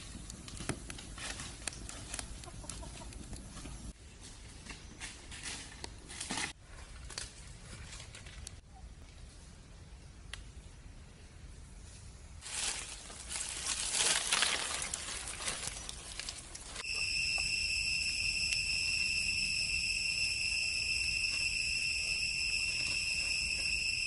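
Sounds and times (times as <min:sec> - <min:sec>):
crackling rustle in undergrowth: 0:00.0 - 0:10.5, 0:11.7 - 0:17.4
shrill insect drone: 0:16.8 - 0:24.0.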